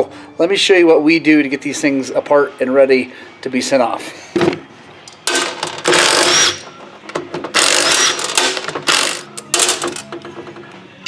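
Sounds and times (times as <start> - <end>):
ratchet wrench clicking: 5.3 - 6.7, 7.6 - 10.0.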